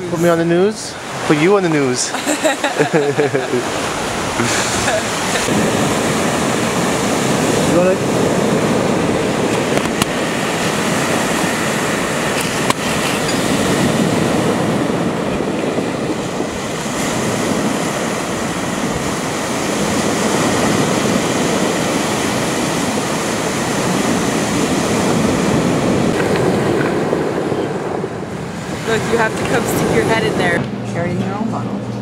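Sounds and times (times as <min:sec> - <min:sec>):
waves washing over pebbles: 0:00.0 - 0:30.6
wind buffeting microphone: 0:00.0 - 0:32.0.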